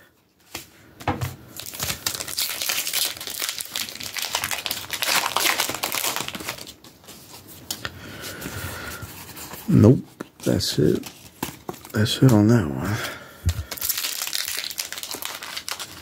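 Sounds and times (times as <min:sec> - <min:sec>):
foil wrapper crinkling: 0:01.5 - 0:07.4, 0:13.6 - 0:16.0.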